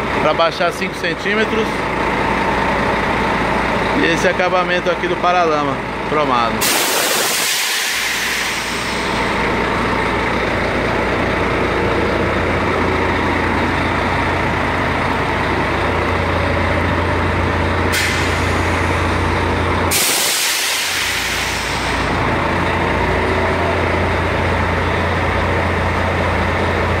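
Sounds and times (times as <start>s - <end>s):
diesel truck engine idling: 0.0s - 27.0s
compressed air hissing: 6.6s - 9.3s, 17.9s - 18.9s, 19.9s - 22.2s.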